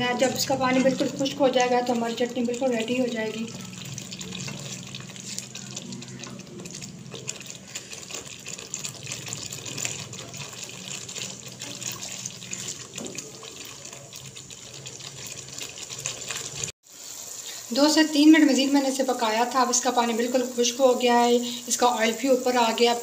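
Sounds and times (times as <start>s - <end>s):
spatula stirring: 0.0s - 16.8s
chutney bubbling and sizzling: 0.0s - 23.0s.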